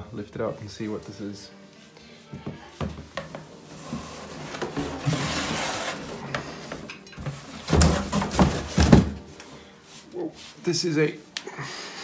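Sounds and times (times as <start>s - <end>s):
case scraping against cardboard: 3.6s - 9.3s.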